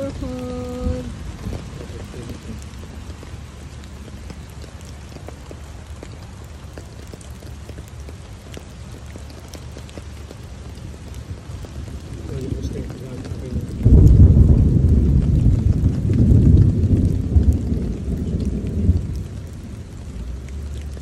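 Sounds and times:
rain drops ticking: 0.0s - 21.0s
low rumble: 12.2s - 20.9s.

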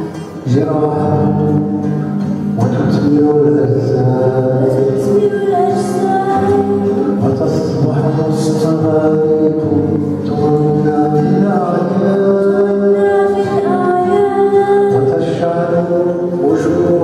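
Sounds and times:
acoustic guitar: 0.0s - 17.0s
girl singing into a microphone: 4.9s - 7.2s, 12.8s - 15.4s.

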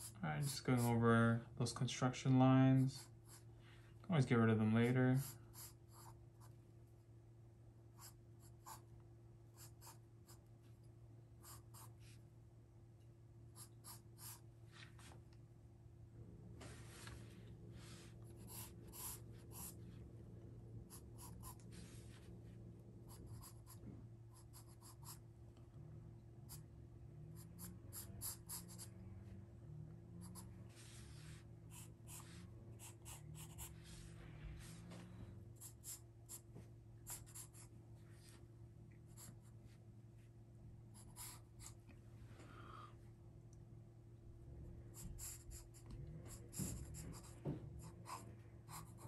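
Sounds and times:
pencil scratching on paper: 0.0s - 1.0s, 8.0s - 8.9s, 9.5s - 10.5s, 11.4s - 12.2s, 13.6s - 14.4s, 18.3s - 19.8s, 20.9s - 22.2s, 23.1s - 25.2s, 27.4s - 28.9s, 30.2s - 34.2s, 35.6s - 37.7s, 39.1s - 39.5s, 41.0s - 41.8s, 44.9s - 49.0s.

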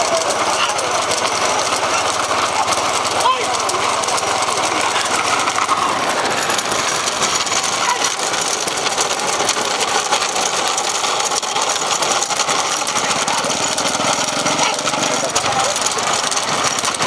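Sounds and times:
engine running with rattle: 0.0s - 17.0s.

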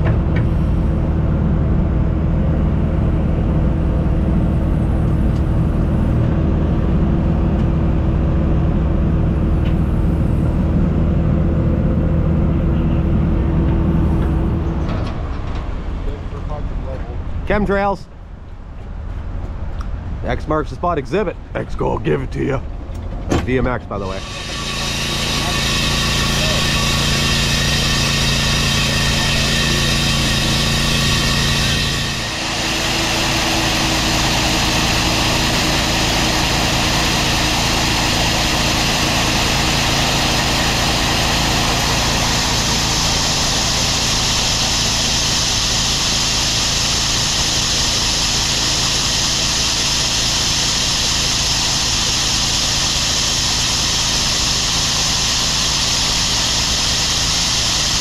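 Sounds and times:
engine running: 0.0s - 58.0s
core drill boring into concrete: 24.0s - 58.0s.

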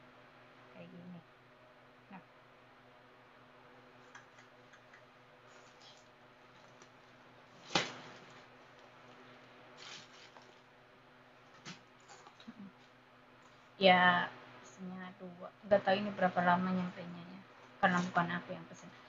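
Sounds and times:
fabric bag rustling: 9.8s - 10.7s.

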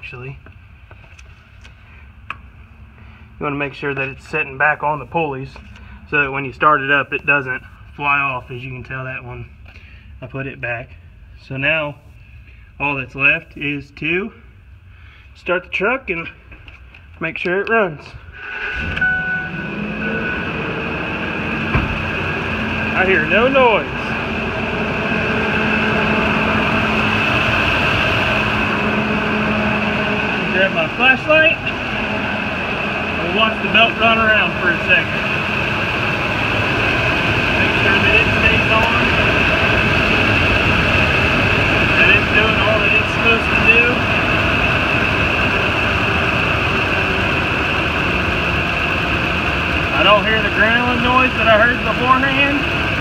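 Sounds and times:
pickup truck engine idling: 18.4s - 53.0s.

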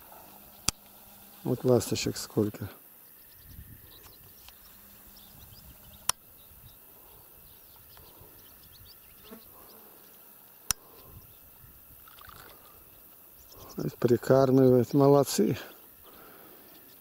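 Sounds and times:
swallows twittering: 0.0s - 17.0s
sharp clicks: 0.6s - 1.0s, 6.0s - 6.2s, 10.6s - 10.8s.

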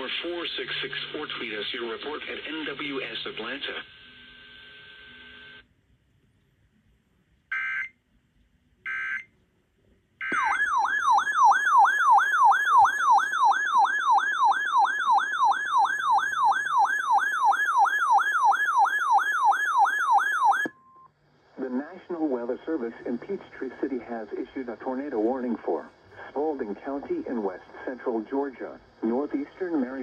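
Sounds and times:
alarm siren warbling: 10.2s - 20.7s.

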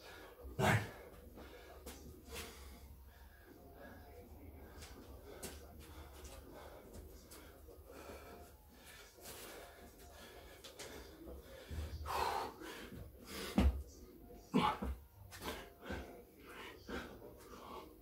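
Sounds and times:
man gasping breaths: 4.7s - 13.8s.

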